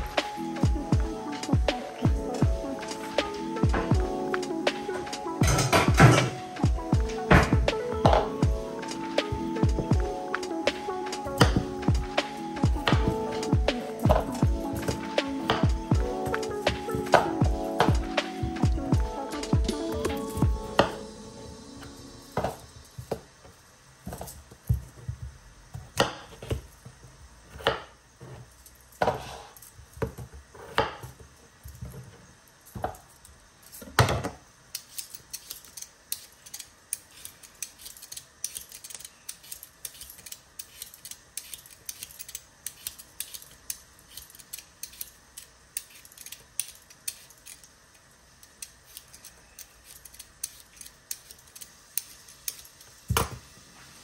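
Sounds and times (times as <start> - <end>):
peeler scraping potato skin: 34.7 - 47.8, 48.4 - 52.8.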